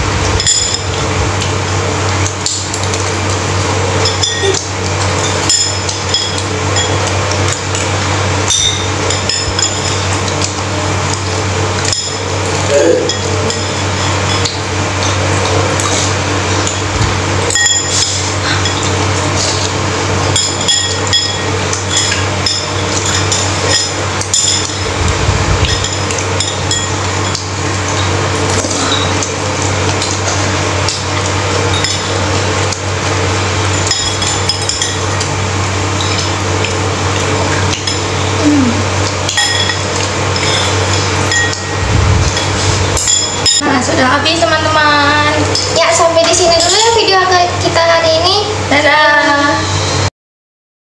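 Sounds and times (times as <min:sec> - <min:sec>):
steady low hum: 0:00.0 - 0:50.1
cutlery clinking on ceramic bowl: 0:04.0 - 0:07.1, 0:08.5 - 0:10.5, 0:11.8 - 0:16.0, 0:20.3 - 0:25.0, 0:31.7 - 0:32.2, 0:33.7 - 0:35.2, 0:39.2 - 0:43.6.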